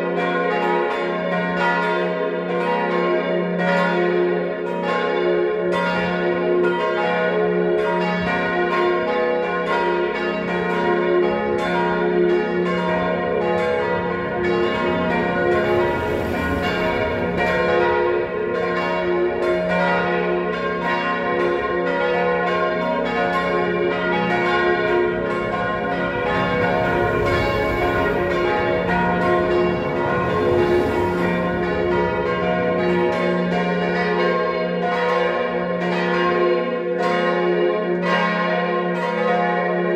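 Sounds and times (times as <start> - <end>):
church bells pealing: 0.0 - 39.9.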